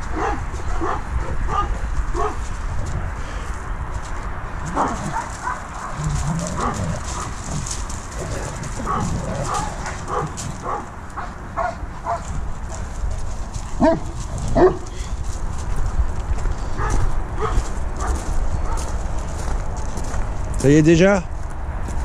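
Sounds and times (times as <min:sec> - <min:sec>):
dogs barking yipping and growling: 0:00.0 - 0:02.9, 0:04.5 - 0:15.9, 0:16.5 - 0:19.5.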